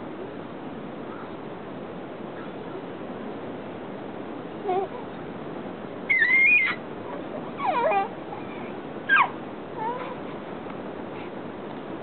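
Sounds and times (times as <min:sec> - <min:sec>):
baby squealing and cooing: 0:06.1 - 0:10.2.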